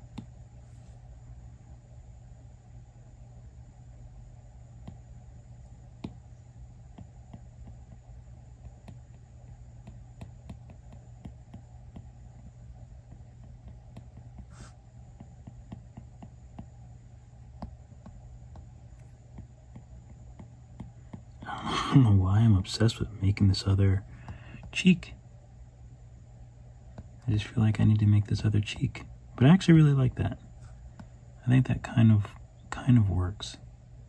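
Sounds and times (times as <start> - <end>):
steady low hum: 0.0 - 34.0
stylus tapping on glass screen: 6.0 - 6.2.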